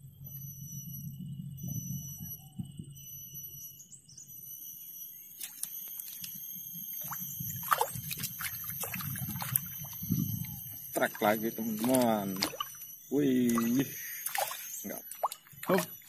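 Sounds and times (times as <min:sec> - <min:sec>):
fish splashing at water surface: 0:07.0 - 0:10.2, 0:10.9 - 0:16.0.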